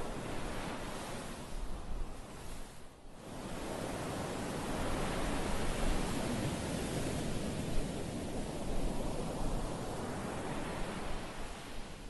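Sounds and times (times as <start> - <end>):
small waves on sandy beach: 0.0 - 12.0
wind: 0.0 - 12.0.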